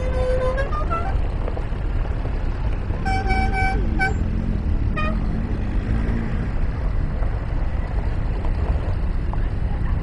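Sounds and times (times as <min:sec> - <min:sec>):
horn toot: 0:00.0 - 0:01.2, 0:03.0 - 0:05.4
tractor engines rumbling: 0:00.0 - 0:10.0.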